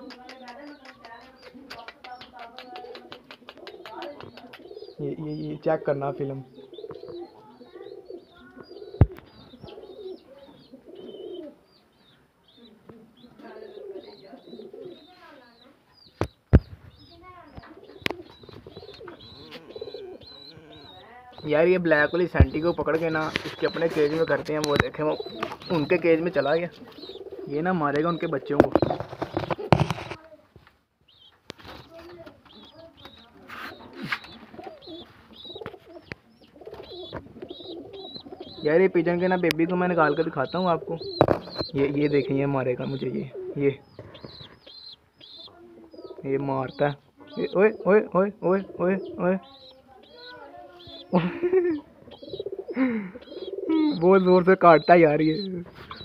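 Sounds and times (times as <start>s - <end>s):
pigeons cooing: 0.0s - 15.6s, 17.0s - 30.0s, 31.1s - 56.0s
young bird peeping: 0.0s - 30.2s, 31.0s - 56.0s
knocks and rustles of handling: 28.6s - 30.8s.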